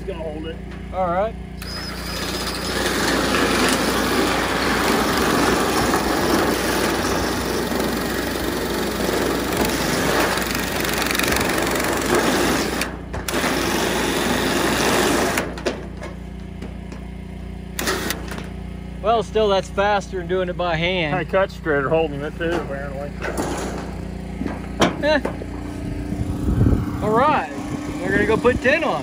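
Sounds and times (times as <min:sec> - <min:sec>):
drill cutting steel sheet: 0:01.6 - 0:15.6, 0:17.8 - 0:18.4.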